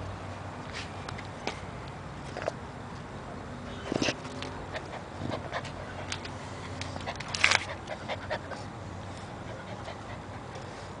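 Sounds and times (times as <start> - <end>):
puppy panting: 4.7 - 11.0.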